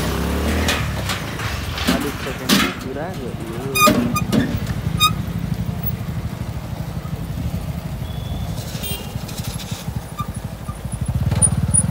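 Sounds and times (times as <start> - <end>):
motorcycle engine low putter: 0.0 - 11.9.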